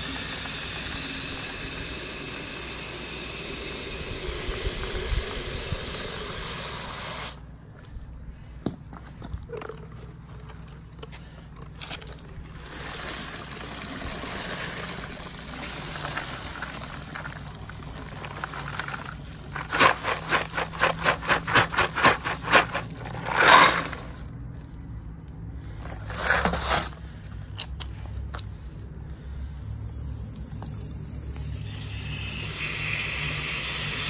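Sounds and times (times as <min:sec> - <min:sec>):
water splashing pour: 0:12.7 - 0:24.0.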